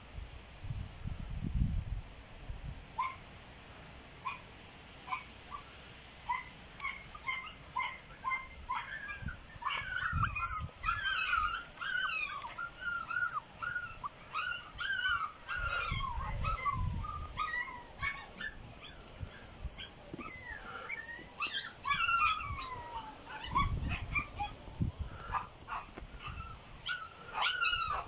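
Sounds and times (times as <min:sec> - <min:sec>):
puppies whimpering and yipping: 0:06.3 - 0:24.6, 0:25.3 - 0:28.0.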